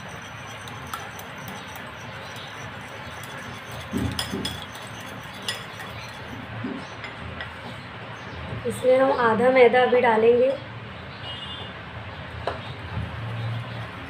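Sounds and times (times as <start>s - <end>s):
whisk clinking against glass bowl: 0.0s - 6.4s.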